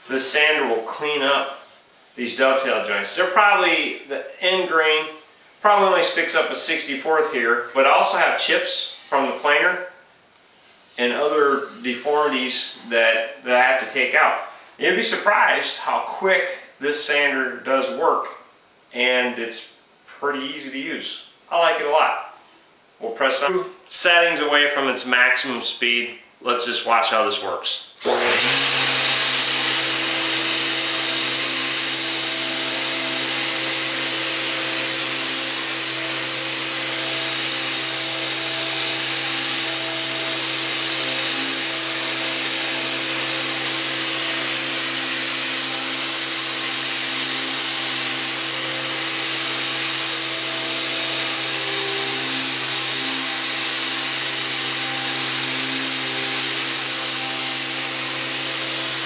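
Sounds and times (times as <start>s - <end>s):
orbital sander sanding wood: 5.6s - 9.6s, 28.0s - 59.0s
shop vacuum running: 28.0s - 59.0s.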